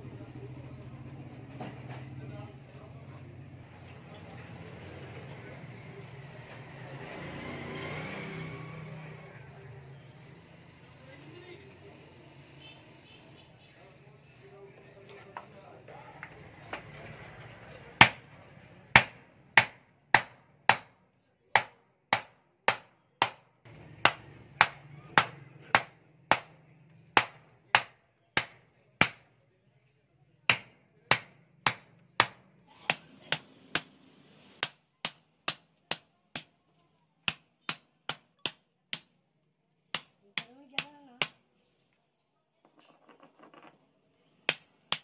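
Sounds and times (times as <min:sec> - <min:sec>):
hammer striking metal punch: 0:30.5 - 0:33.9.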